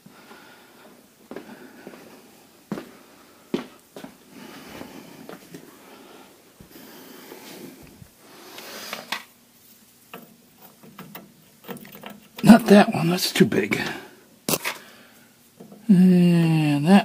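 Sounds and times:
person breathing: 0.0 - 9.1, 13.8 - 15.4.

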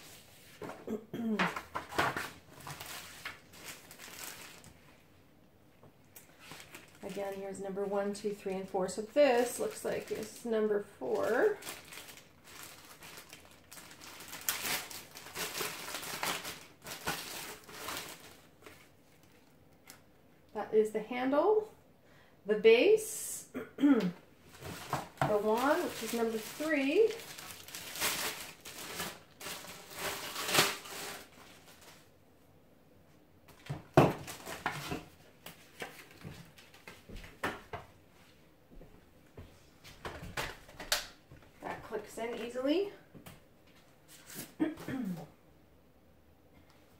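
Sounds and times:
packaging rustling: 1.6 - 4.9, 6.2 - 7.5, 11.0 - 20.0, 24.5 - 32.1, 33.6 - 37.3
plastic bags crinkling: 1.6 - 5.0, 6.1 - 20.0, 24.4 - 32.1, 33.6 - 37.0.

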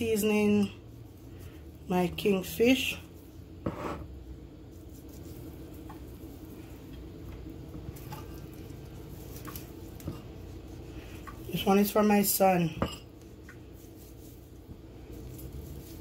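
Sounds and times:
steady low hum: 0.0 - 16.0
hands rubbing seasoning onto fish: 4.5 - 6.7, 13.3 - 16.0.

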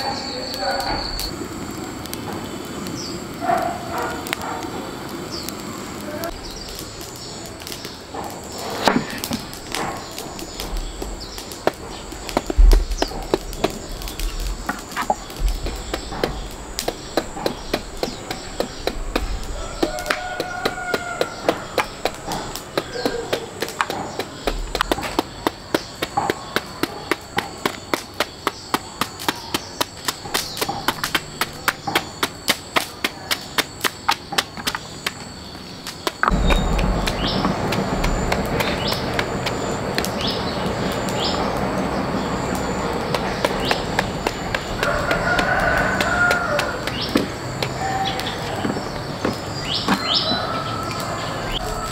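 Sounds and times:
loud steady noise: 0.0 - 51.9
sharp knocks: 8.1 - 35.2
deep thuds: 8.9 - 29.2, 36.2 - 40.3.

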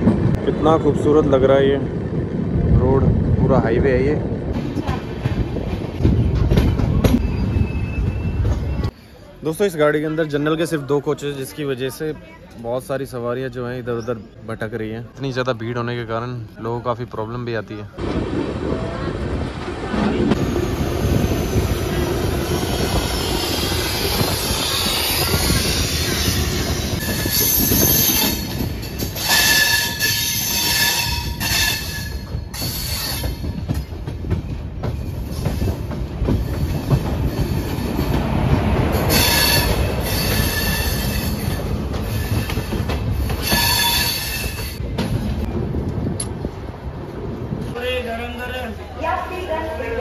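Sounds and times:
train wheels rumbling on track: 0.0 - 12.2, 14.6 - 50.0
steel wheels squealing on rails: 6.0 - 9.4, 20.0 - 45.5.

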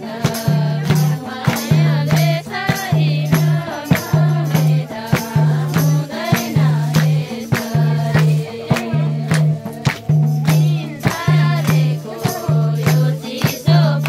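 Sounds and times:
percussion hits: 0.0 - 14.0.

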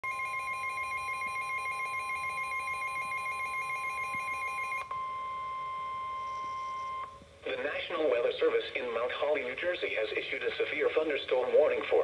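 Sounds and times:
weather radio alarm tone: 0.0 - 7.9.

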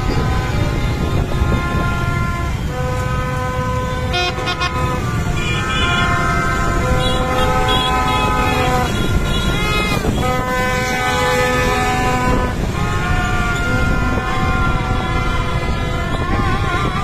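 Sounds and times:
horns honking: 0.0 - 17.0
motorbike engines rumbling: 0.0 - 17.0.

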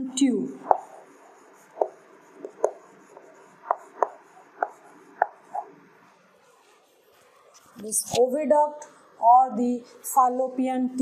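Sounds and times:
sharp taps writing on board: 0.7 - 1.0, 1.7 - 5.7.

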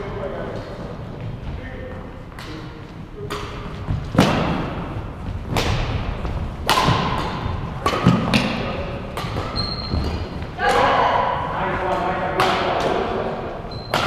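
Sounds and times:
echoing thuds: 0.8 - 13.0.

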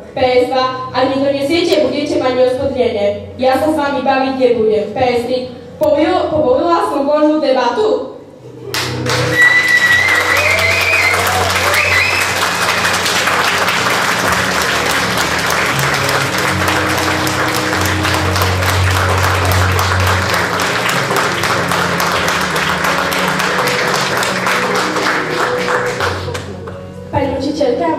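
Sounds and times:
music playing: 8.4 - 27.9
crowd applauding: 8.7 - 26.8.

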